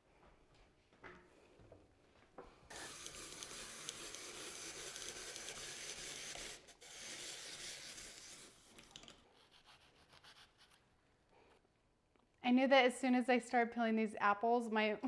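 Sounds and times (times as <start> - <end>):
apple peeler scraping: 2.7 - 10.6.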